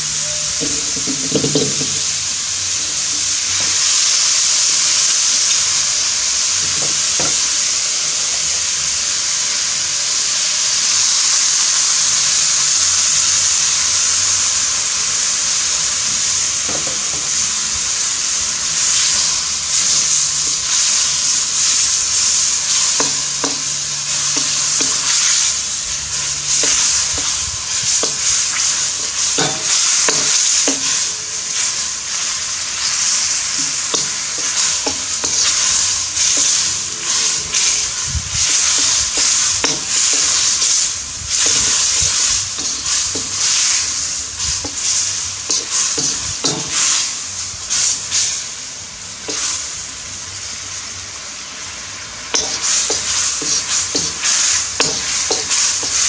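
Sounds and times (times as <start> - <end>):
food sizzling in a wok: 0.0 - 56.0
metal spatula scraping a wok: 21.6 - 47.1, 52.4 - 56.0.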